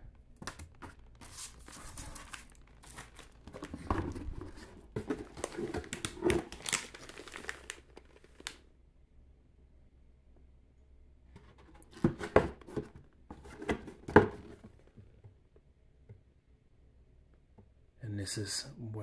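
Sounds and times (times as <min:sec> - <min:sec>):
packaging crinkling: 0:00.4 - 0:08.6.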